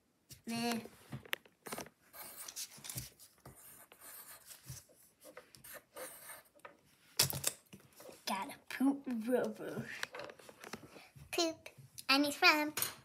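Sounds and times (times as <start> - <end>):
pencil scratching on paper: 1.7 - 6.6.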